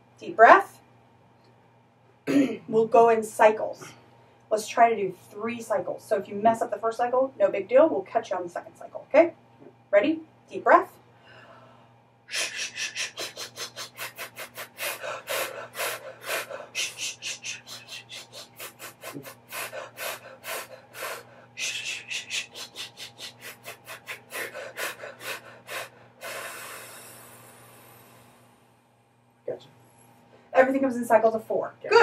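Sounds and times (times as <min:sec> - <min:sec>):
hissed breaths: 0:11.3 - 0:28.6.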